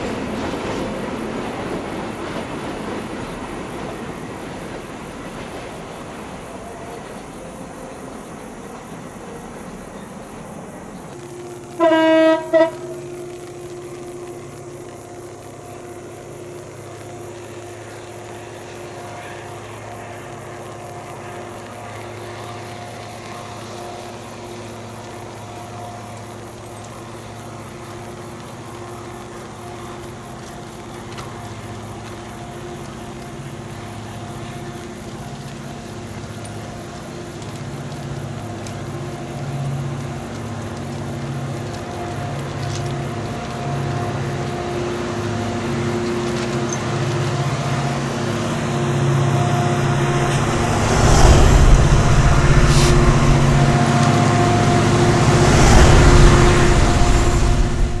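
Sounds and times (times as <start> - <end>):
diesel locomotive engines droning: 0.0 - 58.0
heavy low rumbling: 49.5 - 58.0.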